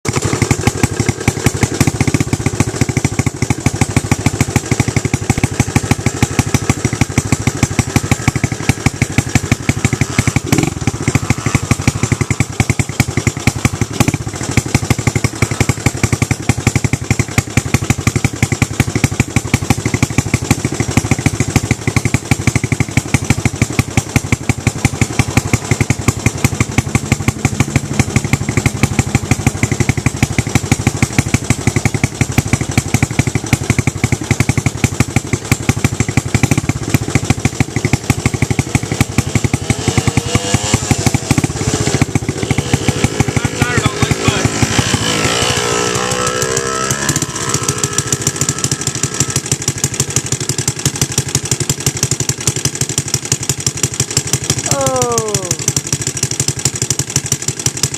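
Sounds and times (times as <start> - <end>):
dirt bike engine high revs: 0.1 - 21.9, 36.1 - 57.9.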